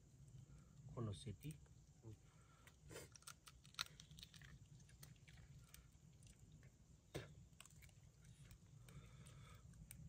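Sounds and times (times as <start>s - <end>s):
faint clicks and crackles: 2.6s - 10.0s.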